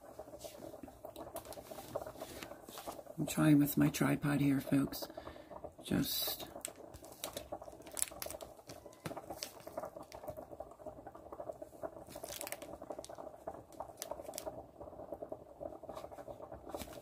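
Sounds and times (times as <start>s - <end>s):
filling squishing in bag: 6.4s - 10.5s, 11.4s - 14.6s
plastic bag crinkling: 6.4s - 10.5s, 12.0s - 14.6s, 16.7s - 17.0s.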